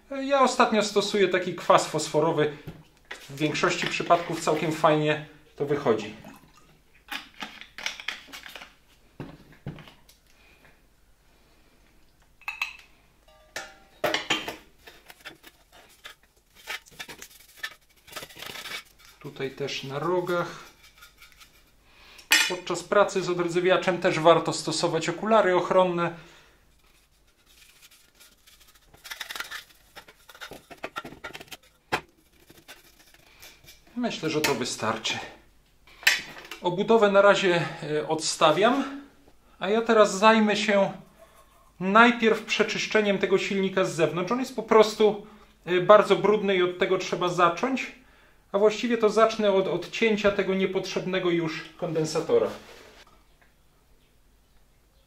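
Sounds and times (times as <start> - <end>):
brush strokes on metal: 14.9 - 21.8
metallic clinks and scrapes: 20.6 - 21.8.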